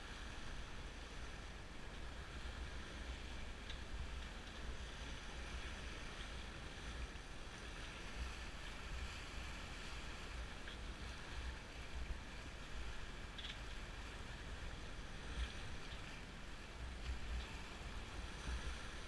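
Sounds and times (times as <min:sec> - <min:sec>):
water washing along hull: 0:00.0 - 0:19.0
faint tick: 0:01.8 - 0:02.2, 0:03.4 - 0:05.0, 0:06.0 - 0:08.3, 0:10.4 - 0:12.2, 0:13.0 - 0:14.0, 0:14.7 - 0:16.2, 0:16.8 - 0:19.0.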